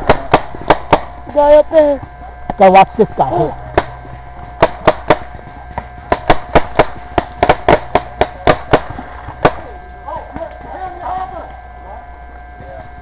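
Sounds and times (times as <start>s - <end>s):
paintball markers firing: 3.8s - 9.7s.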